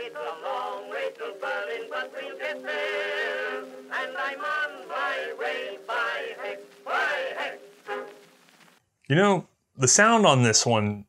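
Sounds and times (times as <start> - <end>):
man singing with vibrato: 0.0 - 7.7
music: 0.0 - 8.8.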